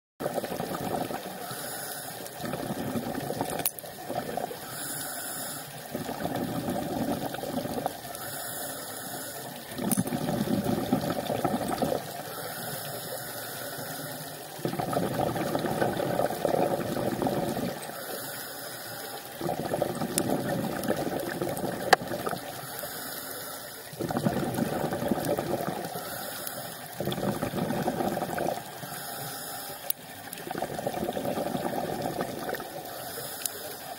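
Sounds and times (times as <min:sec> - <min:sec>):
exhaled bubbles rushing: 0:00.2 - 0:01.4, 0:02.4 - 0:04.7, 0:05.9 - 0:08.2, 0:09.6 - 0:12.2, 0:14.6 - 0:17.9, 0:19.3 - 0:22.6, 0:23.9 - 0:26.2, 0:26.9 - 0:29.0, 0:30.0 - 0:33.0
regulator inhale hiss: 0:01.2 - 0:03.0, 0:04.5 - 0:09.6, 0:11.8 - 0:14.6, 0:16.4 - 0:19.8, 0:21.4 - 0:24.0, 0:25.6 - 0:27.4, 0:28.3 - 0:30.0, 0:32.8 - 0:33.9.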